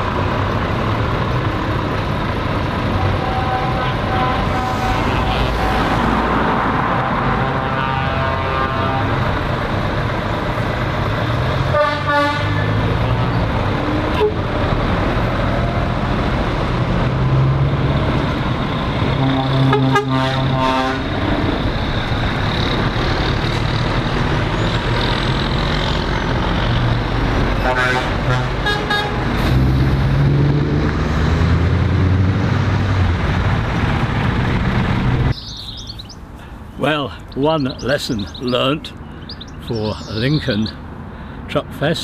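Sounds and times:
lorries driving past: 0:00.0 - 0:42.0
truck horns: 0:02.8 - 0:16.1, 0:17.2 - 0:30.4.

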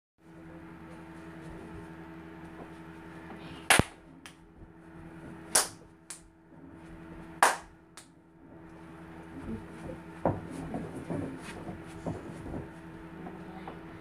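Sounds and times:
steady low hum: 0:00.2 - 0:14.0
loud bangs of dancing feet: 0:07.4 - 0:07.7.

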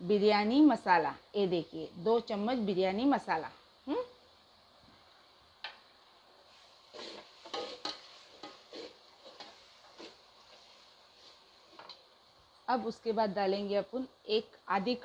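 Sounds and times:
spatula scraping gravy in pot: 0:06.5 - 0:12.0.

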